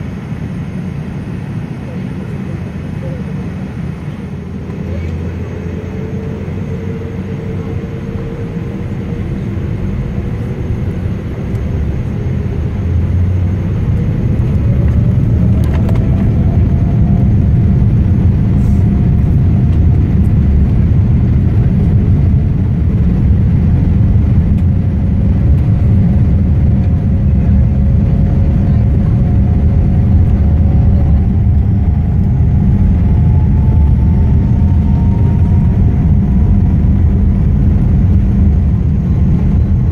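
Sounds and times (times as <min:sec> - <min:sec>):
jet engines spooling up: 0:02.2 - 0:39.9.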